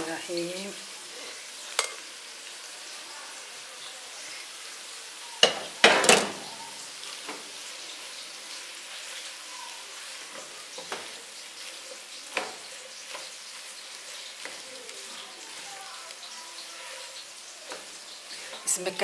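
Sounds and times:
food sizzling in a pan: 0.0 - 19.0
spatula clattering against pan: 1.8 - 2.0.

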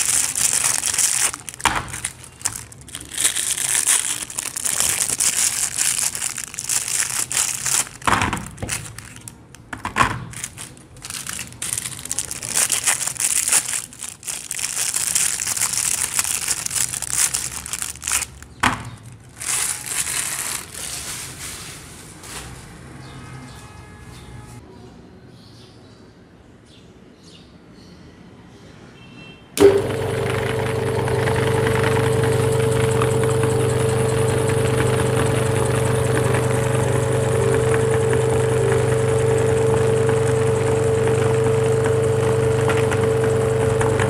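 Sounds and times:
plastic wrapper crinkling and tearing: 0.0 - 22.7.

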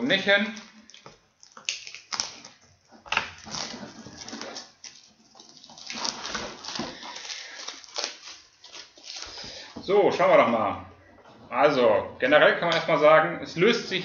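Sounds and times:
plastic shrink wrap crinkling: 0.0 - 10.6.

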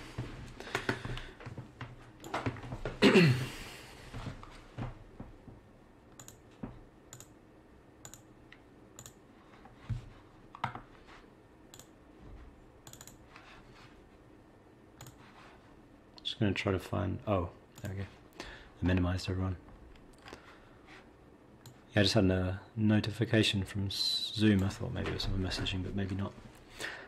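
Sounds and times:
computer input clicks: 6.2 - 6.4, 7.1 - 7.4, 8.0 - 8.3, 9.0 - 9.2, 12.8 - 13.2.

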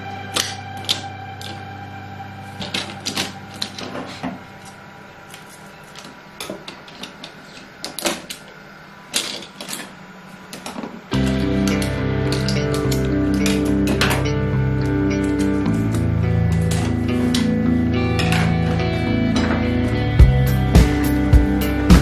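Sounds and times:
hands handling plastic parts: 2.5 - 17.5
loud background music: 11.2 - 22.0.

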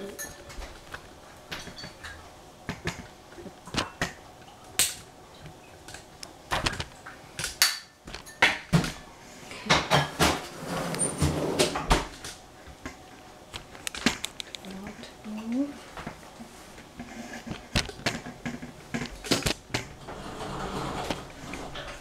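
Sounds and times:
cookware and utensils clattering: 0.0 - 0.8, 1.5 - 2.2, 7.6 - 12.1.

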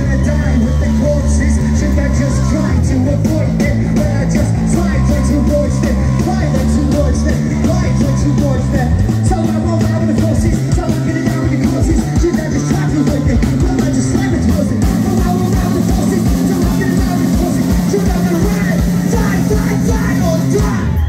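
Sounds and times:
live rock band: 0.0 - 21.0
person singing: 0.0 - 21.0
drum hits: 9.0 - 20.8.

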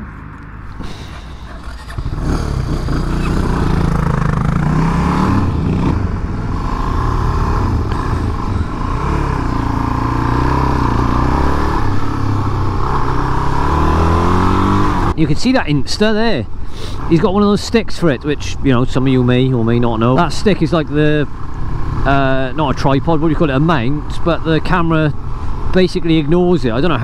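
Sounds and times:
motorcycle engine revving: 0.7 - 15.2, 19.7 - 25.6.

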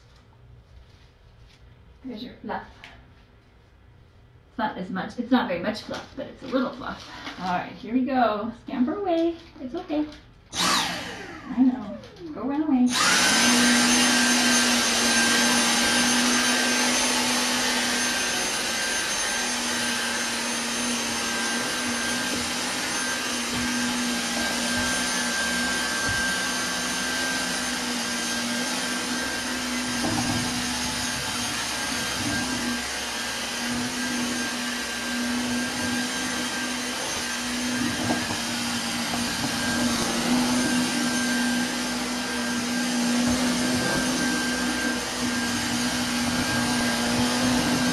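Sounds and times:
vacuum cleaner running: 5.5 - 9.1, 9.7 - 47.9.

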